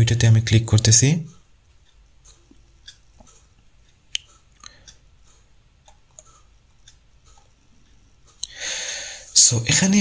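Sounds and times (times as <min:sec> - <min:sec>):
scroll-wheel ticks: 0:00.7 - 0:08.6
computer mouse clicks: 0:05.8 - 0:07.5.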